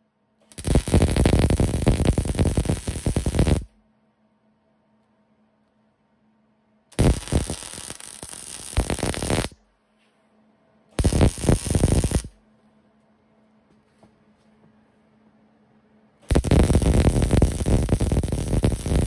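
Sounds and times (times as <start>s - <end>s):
faint steady hum: 0.0s - 19.0s
welder arc crackling: 0.5s - 3.7s, 7.0s - 9.6s, 11.0s - 12.3s, 16.3s - 19.0s.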